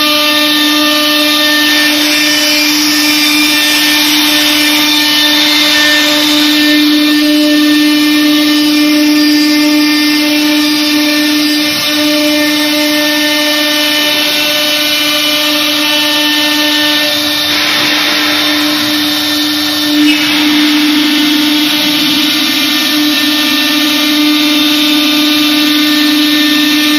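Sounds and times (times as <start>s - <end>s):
bit cutting wood sheet: 0.0s - 26.9s
cnc router spindle whine: 0.0s - 26.9s
loud bump: 16.7s - 26.1s.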